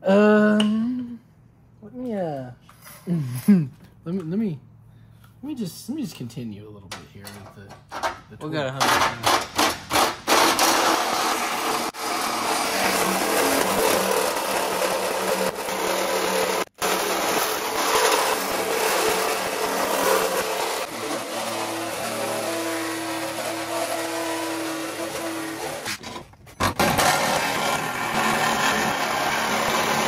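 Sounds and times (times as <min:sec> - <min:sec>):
reciprocating saw cutting metal: 0:08.8 - 0:30.0
saw motor running: 0:10.0 - 0:26.0, 0:26.6 - 0:30.0.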